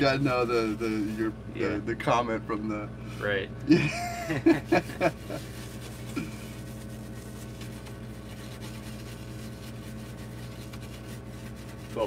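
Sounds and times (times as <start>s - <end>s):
toothbrush scrubbing circuit board: 5.0s - 12.0s.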